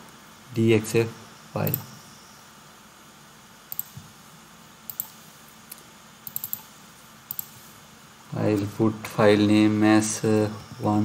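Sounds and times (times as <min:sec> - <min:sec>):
computer mouse clicking: 0:03.7 - 0:04.0, 0:04.9 - 0:06.7, 0:07.3 - 0:07.6.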